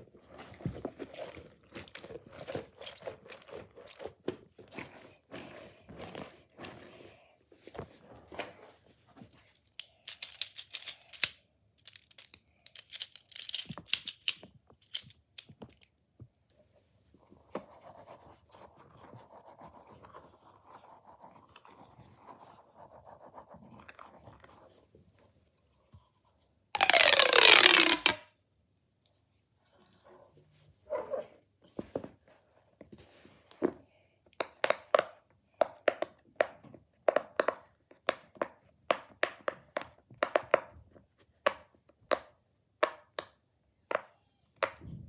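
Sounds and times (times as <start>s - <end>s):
crinkly squeezing of fidget toys: 9.7s - 15.9s, 26.8s - 28.2s.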